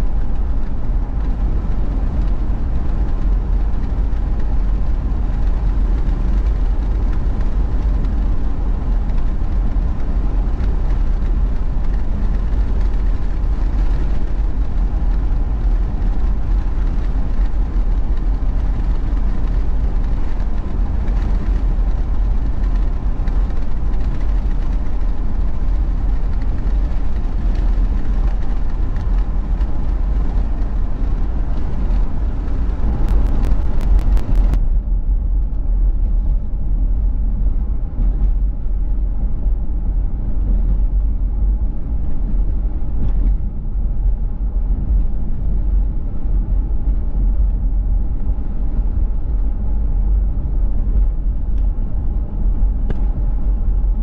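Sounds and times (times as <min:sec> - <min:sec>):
car road and tyre noise: 0:00.0 - 0:54.0
sharp clicks: 0:32.8 - 0:34.6.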